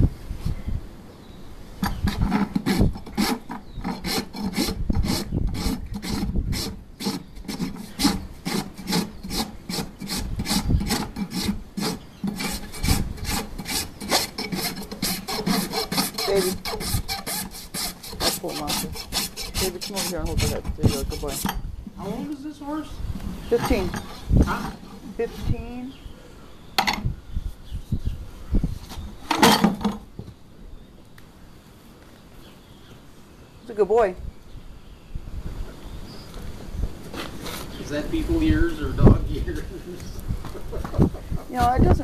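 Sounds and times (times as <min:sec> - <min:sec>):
rasp filing hoof: 0:01.8 - 0:22.2, 0:23.5 - 0:25.6.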